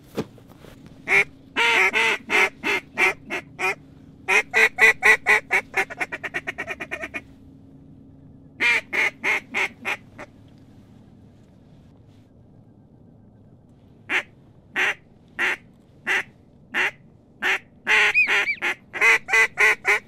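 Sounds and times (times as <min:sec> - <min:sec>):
duck call quacks: 0:01.1 - 0:07.2, 0:08.6 - 0:10.3, 0:14.1 - 0:20.0.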